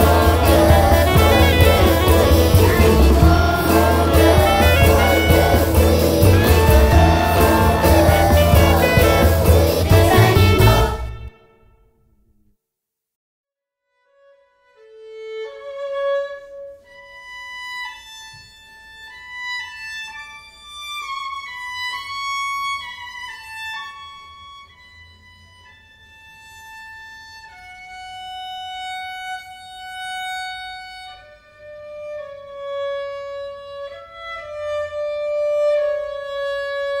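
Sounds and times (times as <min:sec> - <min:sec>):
slow instrumental melody: 0:00.0 - 0:11.7.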